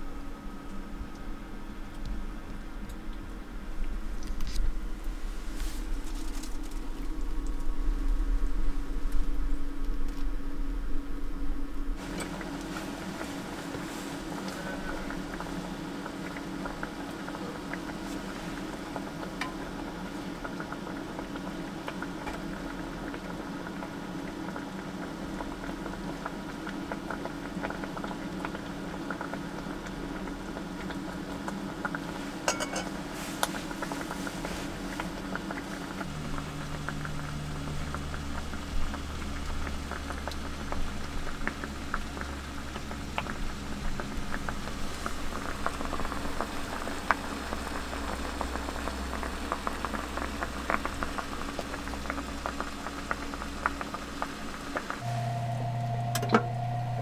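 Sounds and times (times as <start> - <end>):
low hum: 0.0 - 17.4, 34.3 - 57.0
broth bubbling: 11.9 - 55.1
chopsticks clinking dishes: 32.5 - 32.9
deeper low hum: 55.0 - 57.0.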